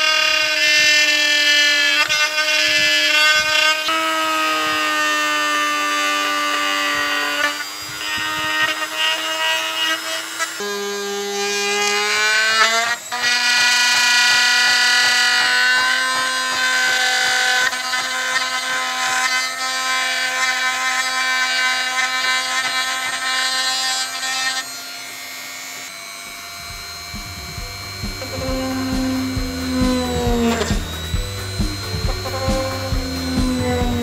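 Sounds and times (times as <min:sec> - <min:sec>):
rotary tool whining: 0:00.0 - 0:34.0
background music with beat: 0:26.7 - 0:34.0.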